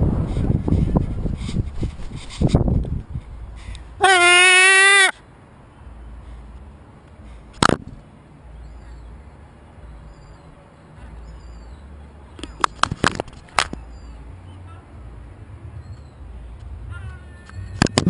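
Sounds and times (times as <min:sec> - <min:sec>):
wind rumble on microphone: 0:00.0 - 0:04.0, 0:15.0 - 0:18.0.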